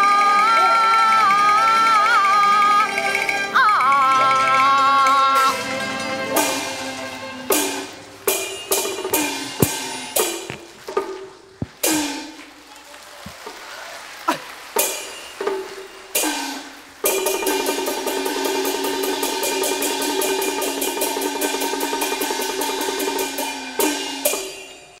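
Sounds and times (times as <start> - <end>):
gong and cymbal roll: 14.8 - 25.0.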